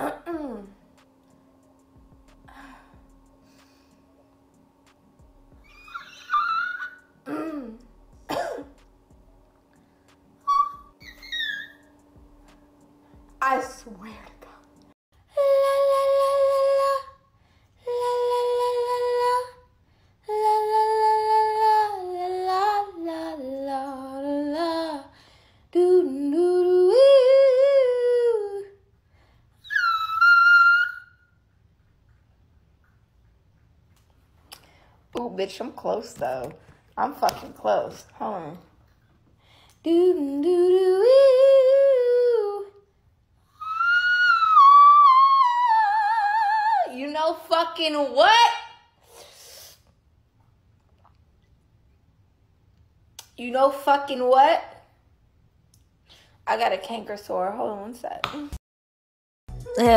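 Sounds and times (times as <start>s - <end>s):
woman vocalising high note: 0.0s - 0.8s, 10.4s - 11.8s
woman singing wordless notes: 0.0s - 0.9s, 25.8s - 28.8s, 39.8s - 42.8s, 59.6s - 59.9s.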